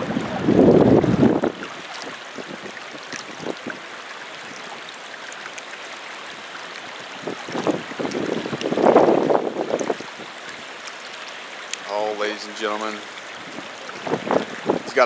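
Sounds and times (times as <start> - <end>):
wind buffeting microphone: 0.0 - 3.9, 7.1 - 10.4, 13.3 - 15.0
fast-flowing river water: 0.0 - 15.0.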